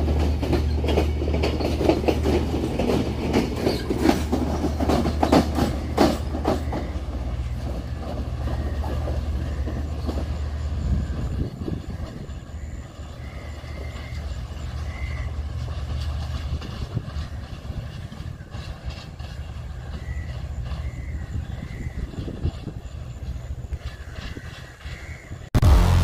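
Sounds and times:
diesel train engine rumble: 0:00.0 - 0:26.0.

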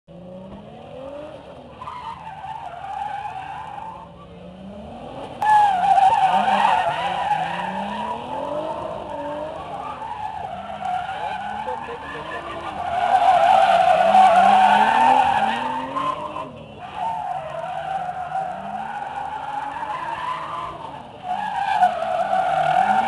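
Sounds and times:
car engine revving: 0:00.1 - 0:23.0
tyres squealing: 0:05.4 - 0:23.0.

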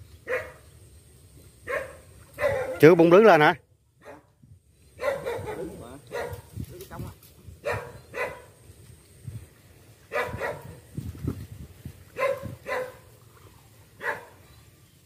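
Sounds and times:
dog barking: 0:00.2 - 0:00.6, 0:01.6 - 0:02.9, 0:04.0 - 0:04.3, 0:05.0 - 0:06.5, 0:07.6 - 0:08.6, 0:10.1 - 0:10.8, 0:12.2 - 0:13.1, 0:14.0 - 0:14.4.

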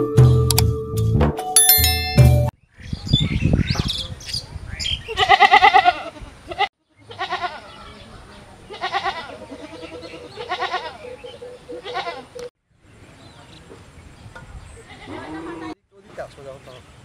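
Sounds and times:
goats bleating: 0:05.2 - 0:07.8, 0:08.7 - 0:11.0, 0:11.8 - 0:12.4.

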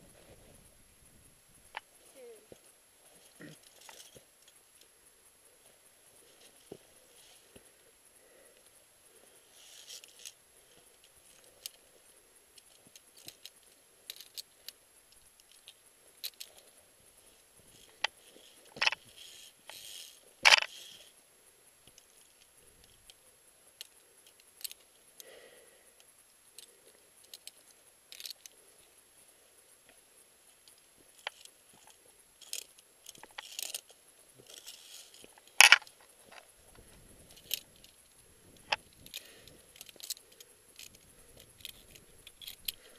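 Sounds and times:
climbing gear clinking on metal: 0:03.1 - 0:04.6, 0:12.6 - 0:21.1, 0:26.6 - 0:28.6, 0:30.6 - 0:42.9.

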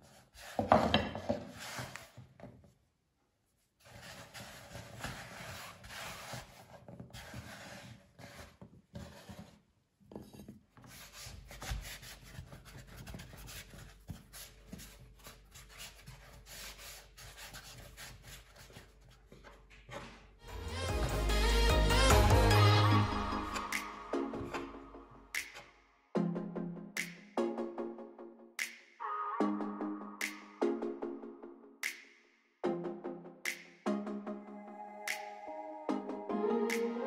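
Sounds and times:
hands rolling dough on a board: 0:03.8 - 0:19.6.

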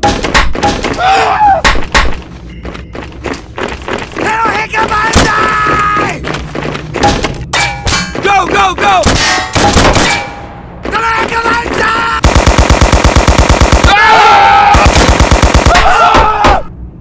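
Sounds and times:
machine-gun automatic fire: 0:12.2 - 0:13.9, 0:14.8 - 0:15.8.

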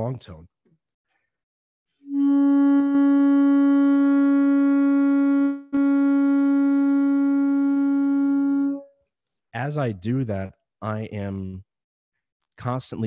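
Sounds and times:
saxophone long tone: 0:02.0 - 0:09.0.

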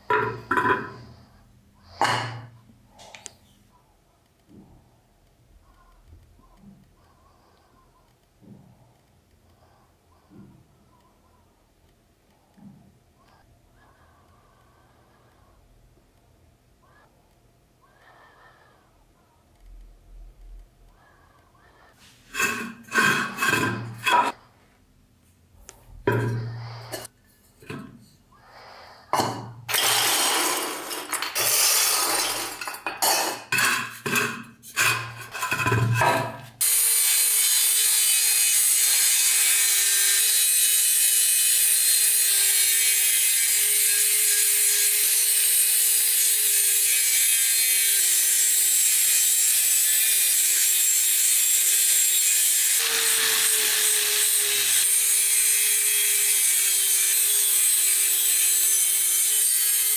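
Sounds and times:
metal parts scraping and clunking: 0:22.0 - 0:24.4, 0:29.7 - 0:36.6
angle grinder grinding metal: 0:22.3 - 0:24.4, 0:26.1 - 0:28.0, 0:29.2 - 0:59.9.

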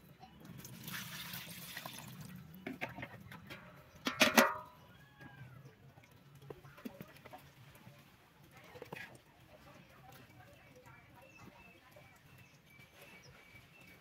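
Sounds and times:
liquid pouring: 0:00.4 - 0:03.0.

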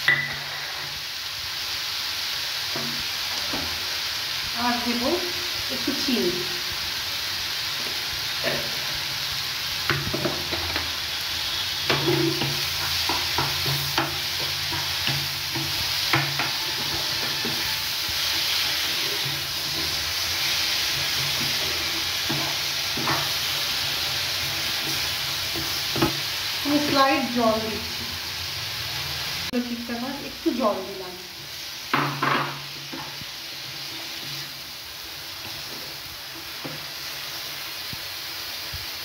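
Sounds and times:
food sizzling in a frying pan: 0:00.0 - 0:39.0
spatula scraping a pan: 0:11.5 - 0:27.1.

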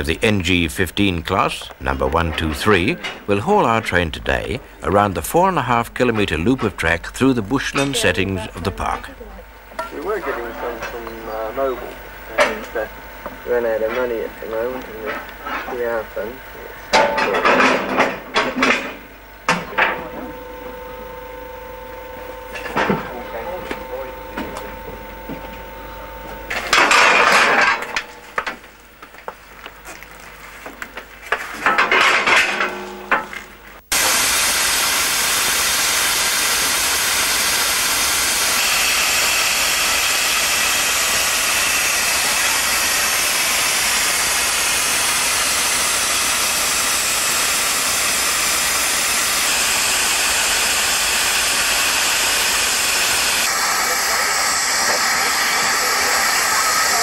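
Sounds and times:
brief steam bursts: 0:33.9 - 0:57.0
steam locomotive hissing steam: 0:33.9 - 0:57.0.

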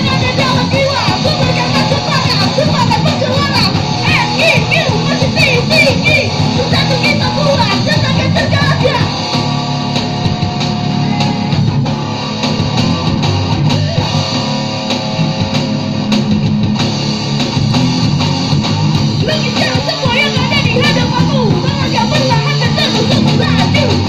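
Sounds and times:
vocalist singing: 0:00.0 - 0:09.2, 0:19.2 - 0:24.0
live rock band playing: 0:00.0 - 0:24.0.

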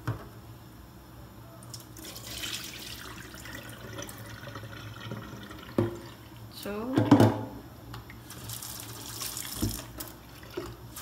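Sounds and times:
water poured into a sink: 0:02.0 - 0:06.2, 0:08.2 - 0:11.0
water sloshing in a pot: 0:08.1 - 0:11.0.

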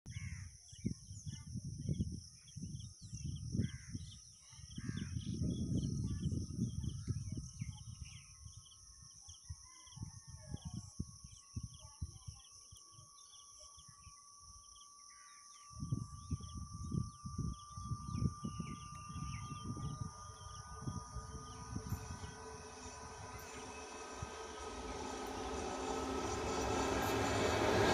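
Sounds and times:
wind gusting on microphone: 0:00.8 - 0:12.5, 0:15.7 - 0:27.9
faint high tone: 0:10.4 - 0:27.9
high insect buzz: 0:10.9 - 0:27.9
birds chirping: 0:11.6 - 0:27.9.

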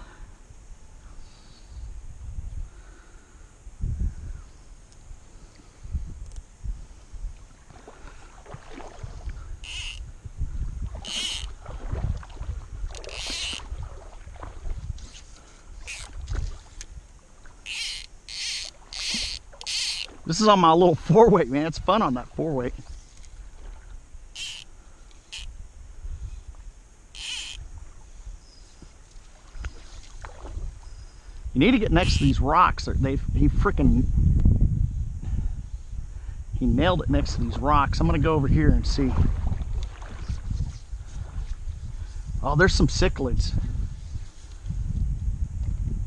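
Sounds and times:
wind rumble on microphone: 0:00.0 - 0:17.7, 0:25.5 - 0:27.0, 0:27.6 - 0:46.0
fly line rasping zips: 0:09.6 - 0:10.0, 0:11.0 - 0:11.6, 0:12.9 - 0:13.7, 0:15.0 - 0:16.2, 0:17.6 - 0:20.2, 0:24.3 - 0:25.5, 0:27.1 - 0:27.6, 0:32.0 - 0:32.4
high buzzy creature calls: 0:09.6 - 0:10.0, 0:11.0 - 0:11.5, 0:13.0 - 0:13.6, 0:15.8 - 0:16.1, 0:17.6 - 0:20.1, 0:24.3 - 0:24.7, 0:25.3 - 0:25.5, 0:27.1 - 0:27.6, 0:31.9 - 0:32.4.

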